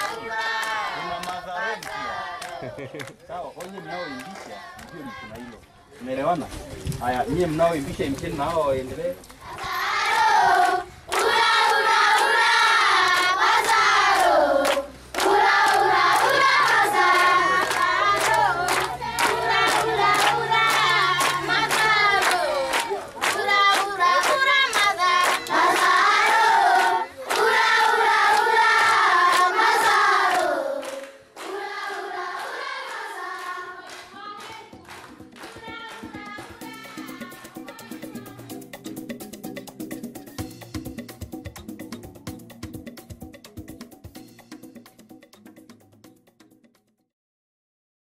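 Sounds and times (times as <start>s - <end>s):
group singing in chorus: 0.0s - 2.8s, 9.5s - 37.7s
hand claps: 0.0s - 5.1s, 9.2s - 12.4s, 13.1s - 37.7s.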